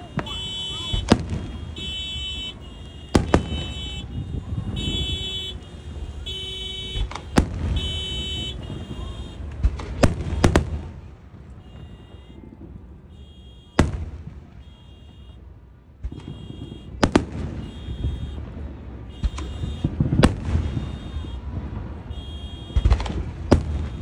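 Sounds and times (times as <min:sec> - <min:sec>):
car alarm high tones: 0:00.0 - 0:09.4
firework bangs: 0:00.0 - 0:24.0.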